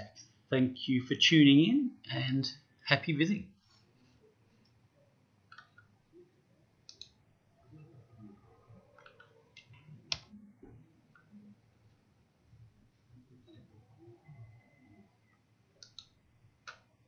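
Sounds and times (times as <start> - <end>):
low room noise: 0.0 - 17.0
faint computer clicks: 6.8 - 7.2, 15.3 - 16.9.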